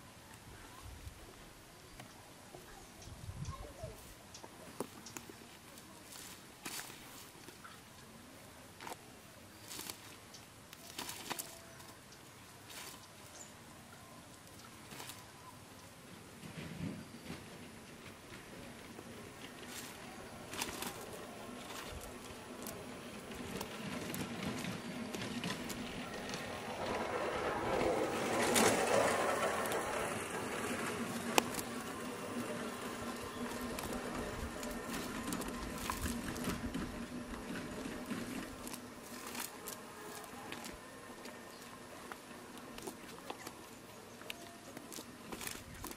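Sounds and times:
nylon net rustling: 9.6 - 13.3, 14.8 - 15.6, 18.0 - 45.9
fish flapping on ground: 10.8 - 11.6, 14.8 - 15.4, 19.3 - 27.0, 27.6 - 45.9.

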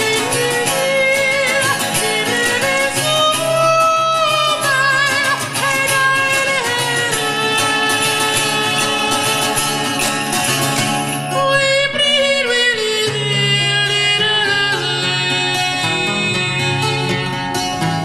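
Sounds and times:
person singing high: 0.0 - 9.8
lute strummed and plucked: 0.0 - 18.0.

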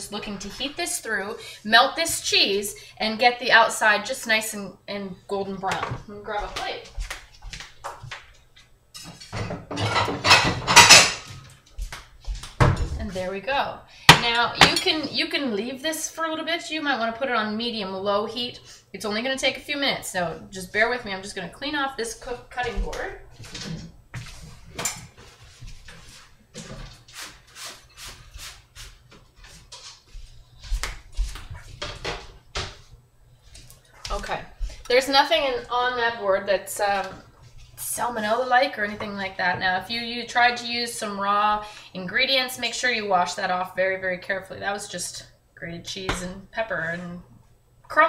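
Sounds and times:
plates clattering: 9.0 - 11.5
rubbing on cutting board: 24.2 - 32.0.

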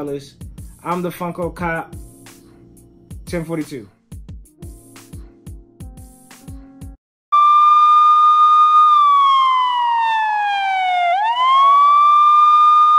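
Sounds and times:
music: 0.0 - 7.0
electronic tone sliding in pitch: 7.4 - 12.9.

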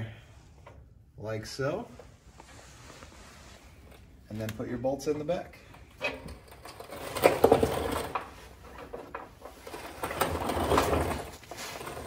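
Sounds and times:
creeper rolling on concrete floor: 5.5 - 12.0.

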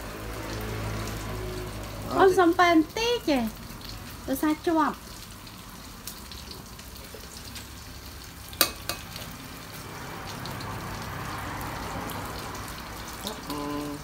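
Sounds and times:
mushrooms sizzling in oil: 0.0 - 14.0.

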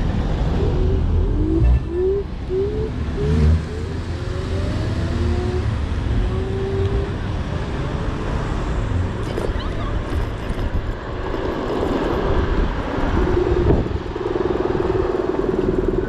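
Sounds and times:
rising whine: 0.0 - 7.2
low rumble of road traffic: 0.0 - 16.0.

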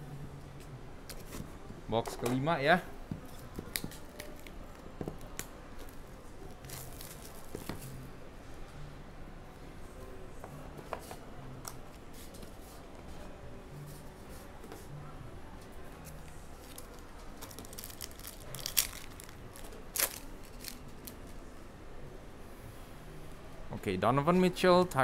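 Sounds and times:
foil wrapper crinkling: 16.6 - 21.2
wrapper ripping: 16.6 - 21.3.

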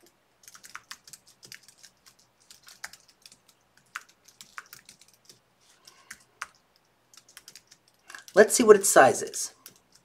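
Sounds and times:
typing on computer keyboard: 0.4 - 8.4, 9.6 - 10.0.

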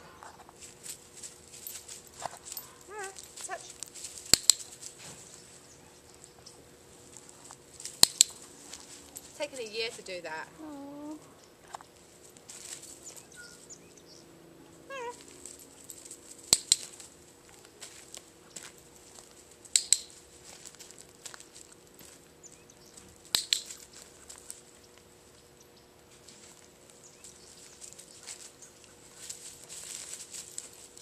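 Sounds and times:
sharp loud clicks: 4.3 - 4.7, 7.9 - 8.4, 16.5 - 17.0, 19.7 - 20.1, 23.3 - 23.8
faint rustling: 26.1 - 31.0.

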